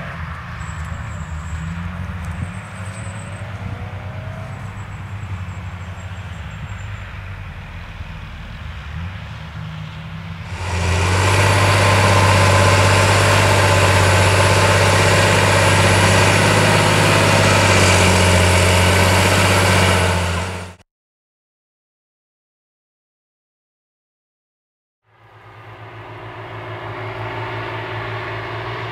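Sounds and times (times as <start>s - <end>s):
tractor diesel engine drone: 0.0s - 20.8s, 25.1s - 28.9s
high whine: 10.4s - 20.8s, 25.2s - 28.9s.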